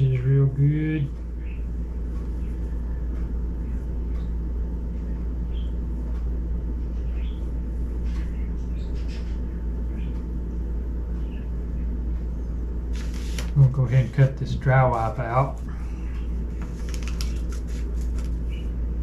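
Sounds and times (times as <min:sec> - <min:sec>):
low background rumble: 0:00.0 - 0:19.0
wipe rubbing on glass screen: 0:12.9 - 0:14.2.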